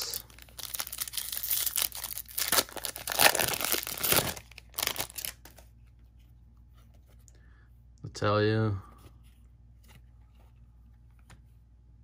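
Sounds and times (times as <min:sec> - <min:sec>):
foil wrapper tearing and crinkling: 0:00.0 - 0:05.6.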